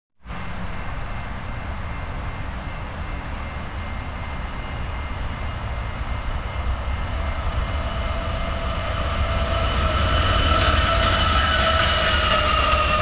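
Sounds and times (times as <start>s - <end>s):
freight train rumble: 0.2s - 13.0s
steady high tones: 1.1s - 13.0s.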